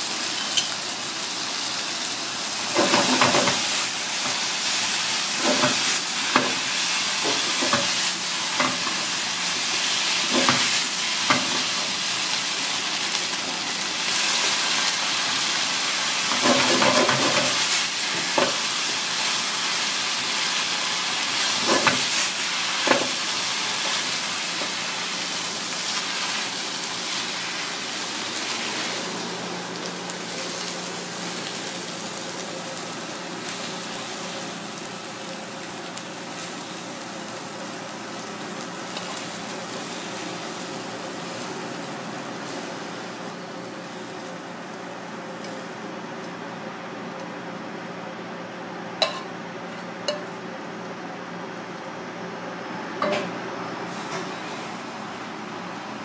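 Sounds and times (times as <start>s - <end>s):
food sizzling in a hot pan: 0.0s - 46.0s.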